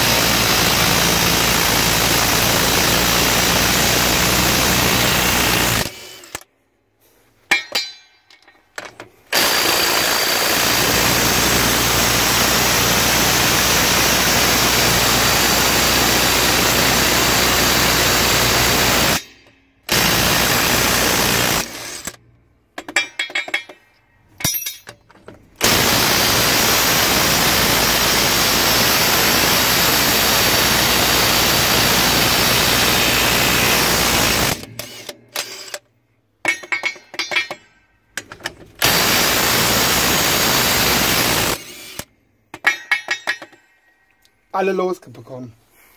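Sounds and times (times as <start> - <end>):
impact wrench rattling: 21.6 - 25.8, 36.4 - 39.0, 41.1 - 43.7.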